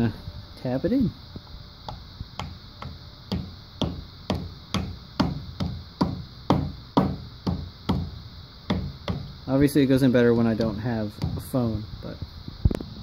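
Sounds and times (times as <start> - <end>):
rubber mallet tapping: 1.9 - 9.3.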